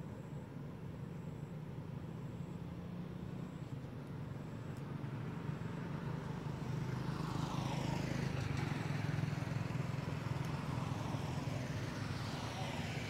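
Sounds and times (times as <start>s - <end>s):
motor vehicle approaching: 2.7s - 13.0s.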